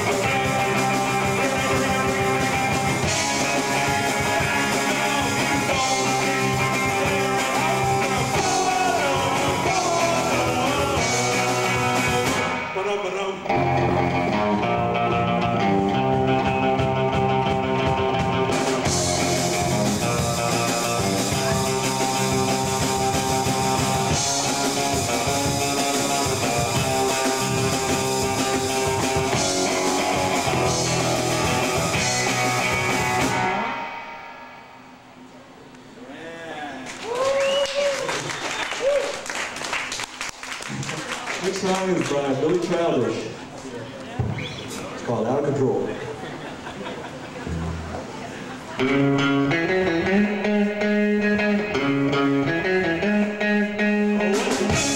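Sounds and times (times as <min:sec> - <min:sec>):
electric guitar: 0:00.0 - 0:35.3, 0:47.3 - 0:54.9
drums: 0:00.0 - 0:54.9
man singing: 0:00.2 - 0:02.6, 0:03.6 - 0:13.7.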